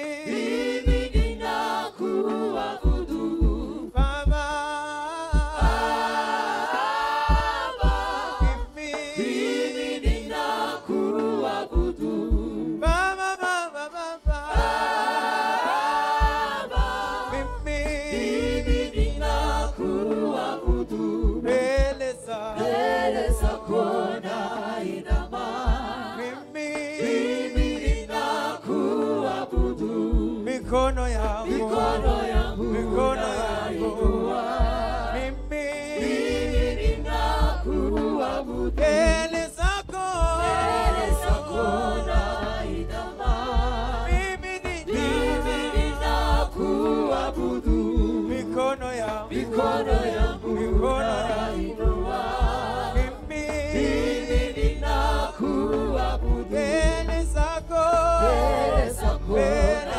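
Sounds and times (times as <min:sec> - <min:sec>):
group singing praise song: 0:00.0 - 0:59.9
deep low accompaniment: 0:16.2 - 0:20.1, 0:29.6 - 0:59.9.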